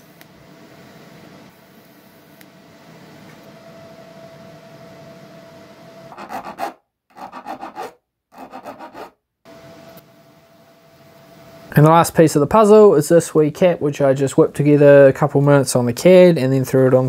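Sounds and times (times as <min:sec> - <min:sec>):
hand file rasping on metal: 0:06.1 - 0:09.2.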